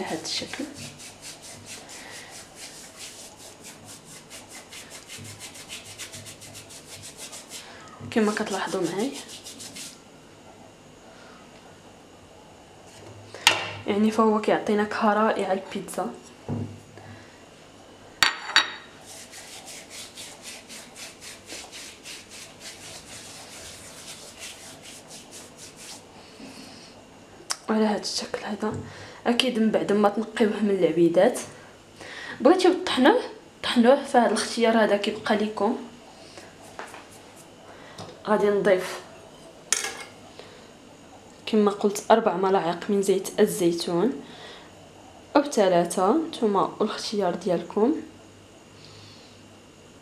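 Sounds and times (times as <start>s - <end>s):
palms rubbing dried herbs: 0.0s - 10.0s, 19.0s - 26.9s, 36.5s - 37.5s.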